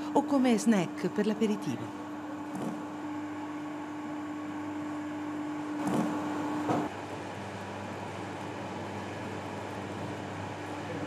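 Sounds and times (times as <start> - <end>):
conveyor machine hum and rumble: 0.0 - 11.0.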